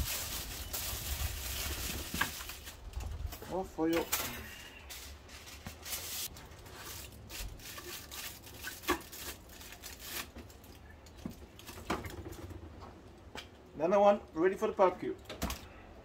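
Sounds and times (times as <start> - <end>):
aluminium foil crinkling: 0.0 - 11.8.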